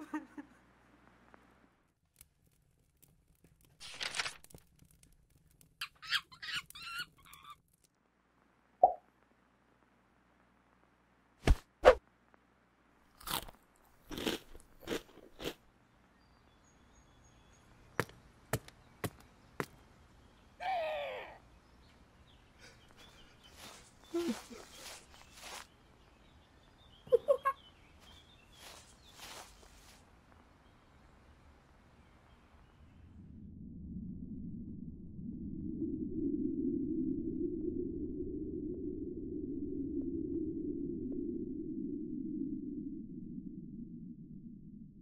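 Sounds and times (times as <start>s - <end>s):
fluttering chirp: 23.0s - 25.7s, 28.0s - 30.0s
short rustle: 23.1s - 25.7s, 28.0s - 30.0s.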